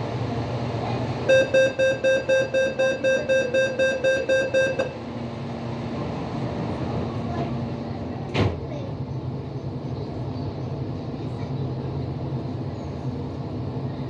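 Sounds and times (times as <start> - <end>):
train low hum: 0.0 - 14.0
rapid warning beeps: 1.3 - 5.0.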